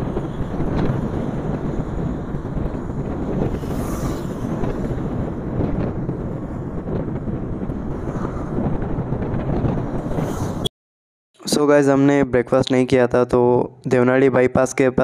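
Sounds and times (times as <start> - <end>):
road noise: 0.0 - 10.7
wind rush over microphone: 0.0 - 10.7.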